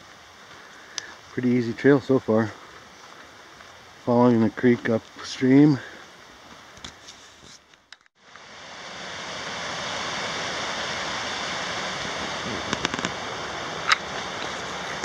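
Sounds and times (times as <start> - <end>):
creek running over rocks: 8.3 - 15.0.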